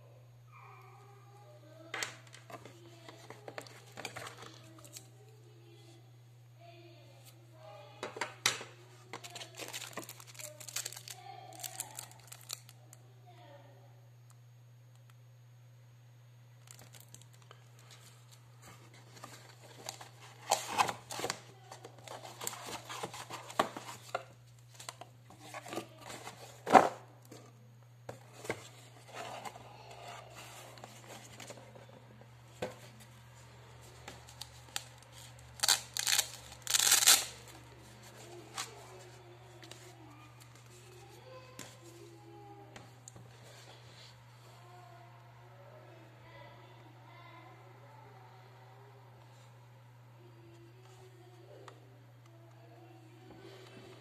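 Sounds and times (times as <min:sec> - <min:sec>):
plastic packaging crinkling: 0:09.0 - 0:12.8, 0:16.6 - 0:18.4, 0:19.0 - 0:26.6, 0:34.2 - 0:38.8.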